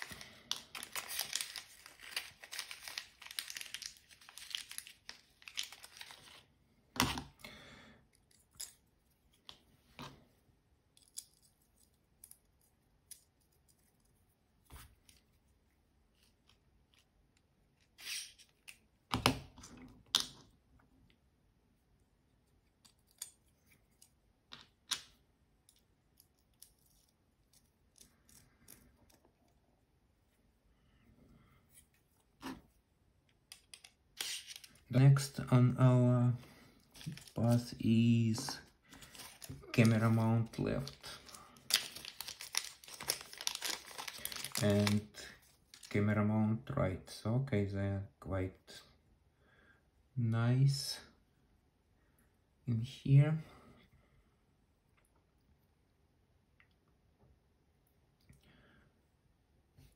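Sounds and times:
plastic bag crinkling: 0.0 - 6.5, 36.9 - 37.8, 38.4 - 46.0.

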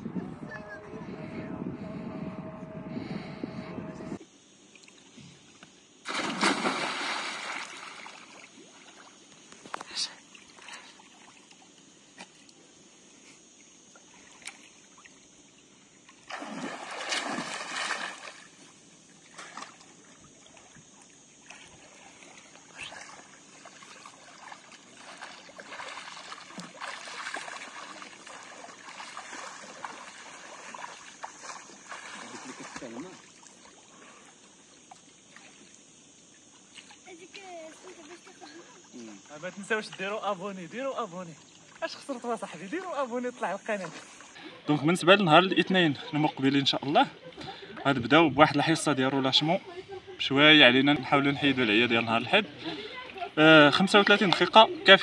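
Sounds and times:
water sloshing from swimming: 4.7 - 12.5, 13.6 - 40.2, 50.8 - 55.0
person jumping into pool splash: 6.0 - 9.1, 16.2 - 18.6, 22.7 - 33.1.

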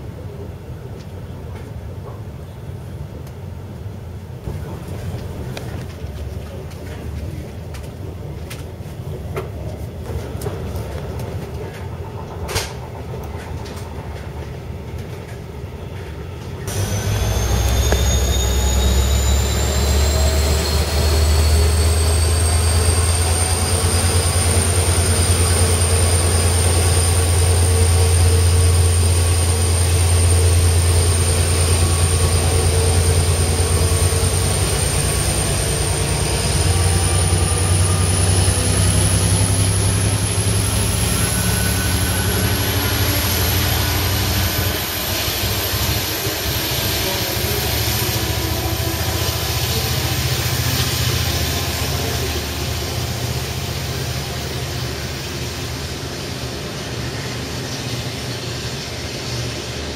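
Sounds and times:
diesel locomotive engine drone: 0.0 - 59.9
high whine: 16.6 - 59.9
rushing noise: 16.7 - 59.9.

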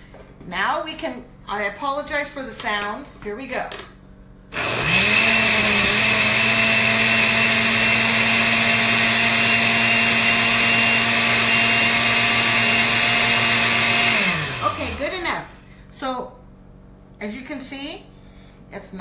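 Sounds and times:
rushing noise of blending: 4.5 - 15.2
blender motor whine: 4.5 - 15.4.

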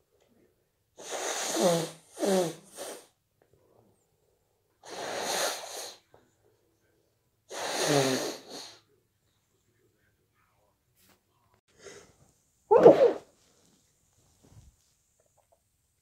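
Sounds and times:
person blowing nose: 1.0 - 3.1, 4.8 - 6.0, 7.5 - 8.8, 12.7 - 13.3
person sneezing: 12.7 - 13.3.

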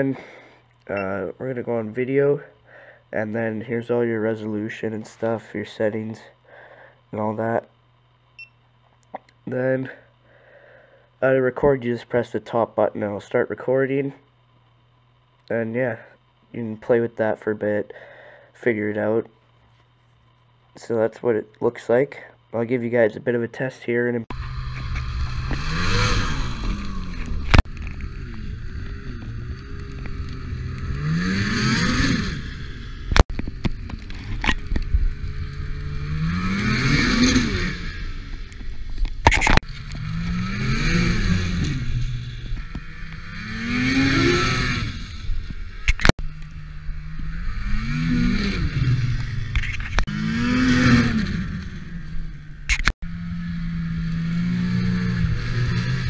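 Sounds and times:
snowmobile engine revving: 24.3 - 56.0.

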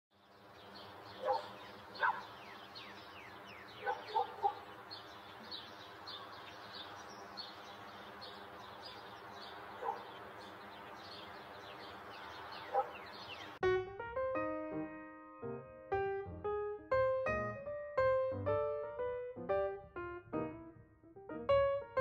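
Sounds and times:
birds chirping: 0.1 - 13.6
louder lower bird calls: 0.6 - 13.6.

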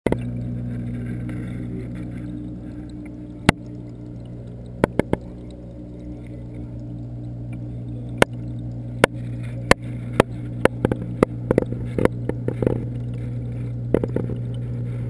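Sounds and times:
low mechanical pump hum: 0.0 - 15.0.

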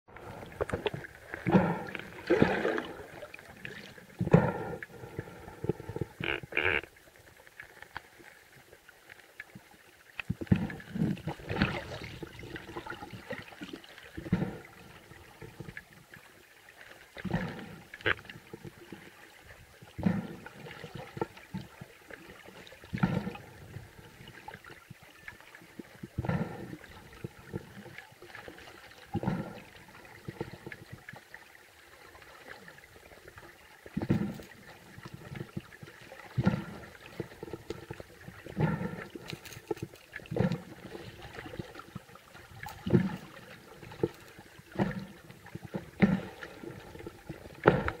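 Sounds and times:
muffled underwater noise: 0.1 - 7.0, 26.1 - 28.0, 36.4 - 41.4.

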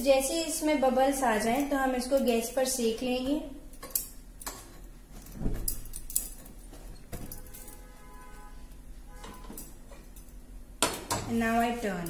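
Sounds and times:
metal tongs clinking: 5.6 - 6.6.

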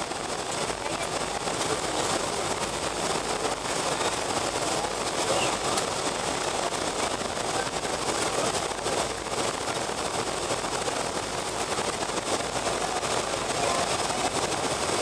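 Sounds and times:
jet engines rushing in cabin: 0.0 - 15.0.

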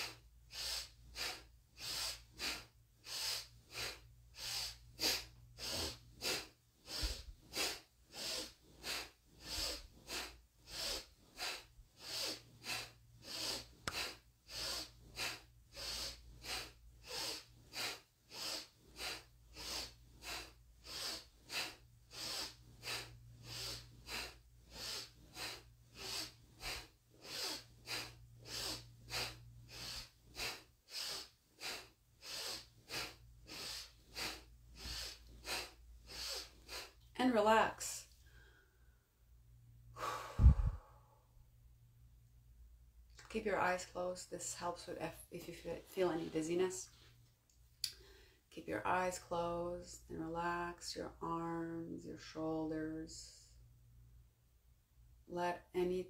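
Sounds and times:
forceful breathing through nose: 0.0 - 37.1, 39.9 - 41.3.

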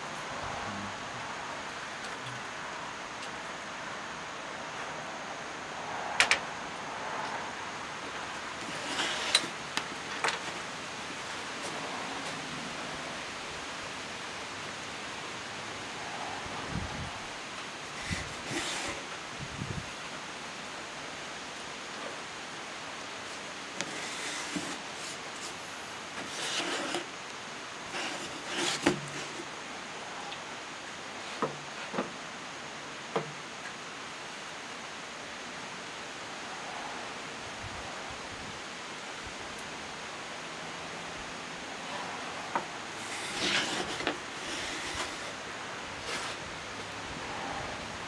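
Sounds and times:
steady background hiss: 0.0 - 48.0
hand brushing across wood panel: 26.2 - 27.1, 43.0 - 45.4.

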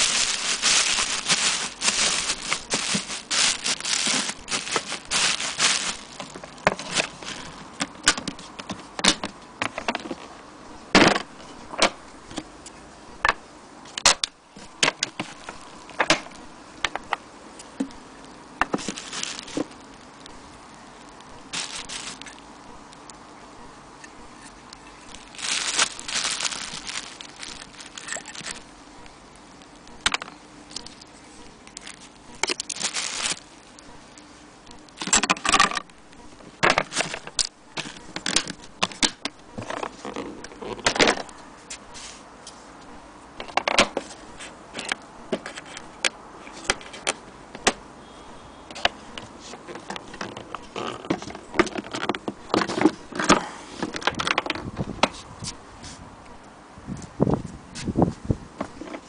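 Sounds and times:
bubble wrap crinkling: 0.0 - 8.4, 15.1 - 16.5, 18.7 - 22.4, 24.7 - 34.2.

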